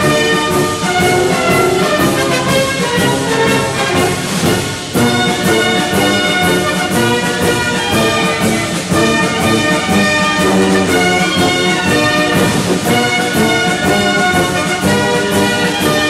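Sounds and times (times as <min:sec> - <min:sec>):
orchestral music led by brass: 0:00.0 - 0:16.0.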